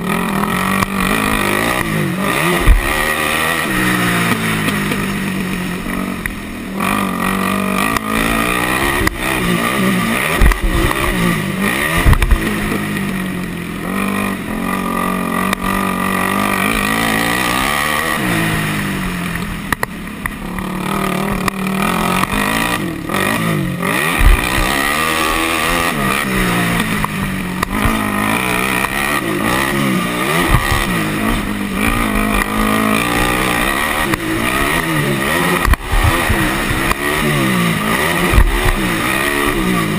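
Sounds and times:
quad engine revving hard: 0.0s - 39.9s
sharp thumps: 0.4s - 6.5s, 7.2s - 13.3s, 19.3s - 39.9s
wind rushing over microphone: 35.6s - 36.9s.

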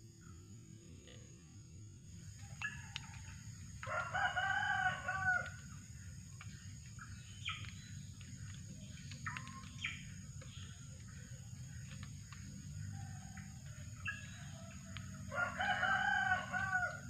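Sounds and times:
rooster crowing: 2.7s - 5.6s, 14.4s - 17.0s.

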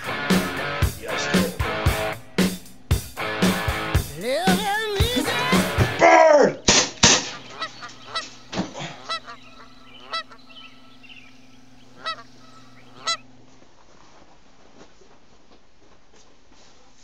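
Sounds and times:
geese honking: 3.2s - 13.2s.

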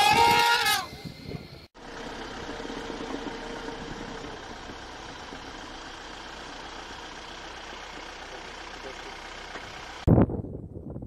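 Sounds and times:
vehicle engine running: 1.2s - 10.1s
road noise rushing: 1.6s - 10.1s.

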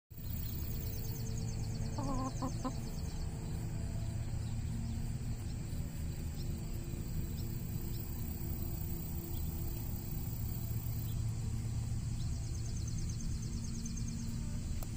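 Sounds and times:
steady low rumble: 0.2s - 14.9s
chicken clucking: 1.9s - 3.0s.

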